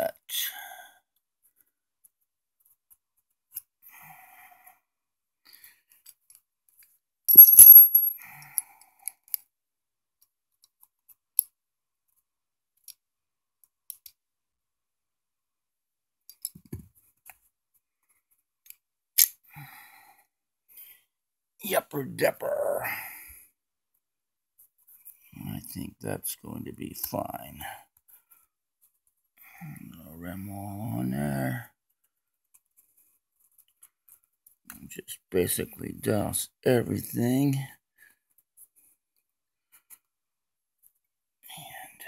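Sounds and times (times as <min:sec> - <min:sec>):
small metal parts clinking: 0:07.3 - 0:08.2.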